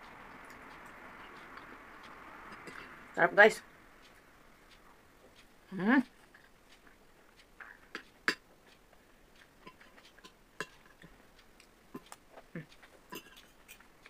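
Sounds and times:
cutlery clinking on glass bowl: 0:13.1 - 0:13.6.

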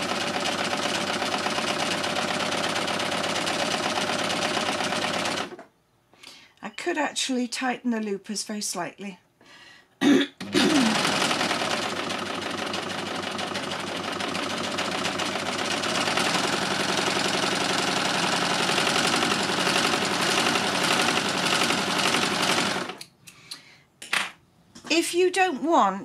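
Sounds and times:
overlocker sewing machine rattling: 0:00.0 - 0:05.6, 0:10.4 - 0:23.0.

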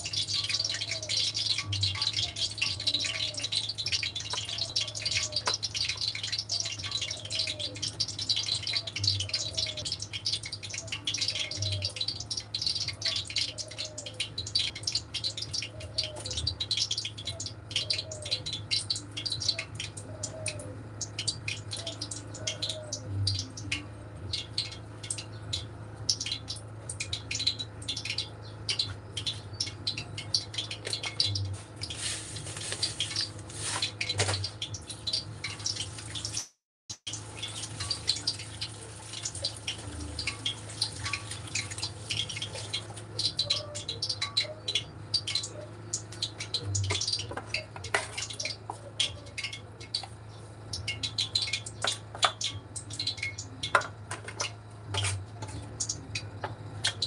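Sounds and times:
tap water splashing: 0:00.2 - 0:12.1, 0:37.1 - 0:43.4, 0:46.0 - 0:50.2, 0:50.8 - 0:57.0
dry crumbs rattling in metal tray: 0:31.9 - 0:34.4.

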